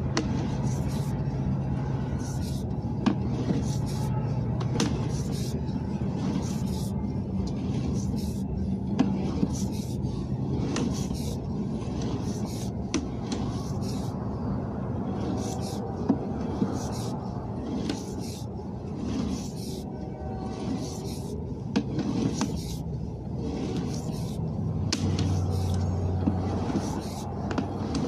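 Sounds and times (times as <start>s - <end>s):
low rumble: 1.2s - 17.9s.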